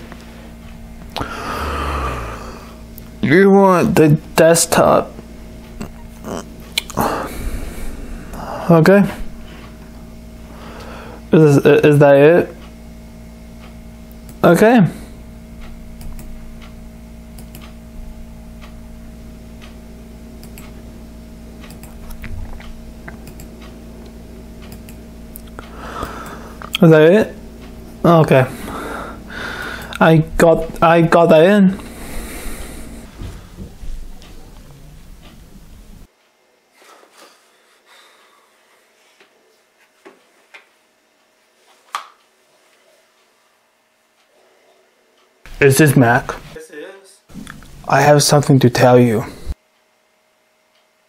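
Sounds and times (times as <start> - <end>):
low electrical hum: 0.0 - 51.0
man breathing softly: 1.2 - 2.8, 10.5 - 11.3, 25.6 - 26.6, 28.5 - 30.0, 31.8 - 33.6
sharp click: 15.6 - 16.8, 17.4 - 17.8, 20.4 - 20.8, 24.6 - 25.0
computer mouse clicks: 16.0 - 16.7, 17.4 - 17.8, 20.4 - 20.8, 21.6 - 23.7, 24.6 - 25.0.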